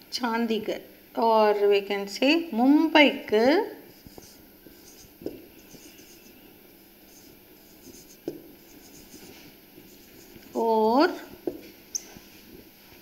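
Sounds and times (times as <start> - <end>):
marker scratching on whiteboard: 3.9 - 12.3.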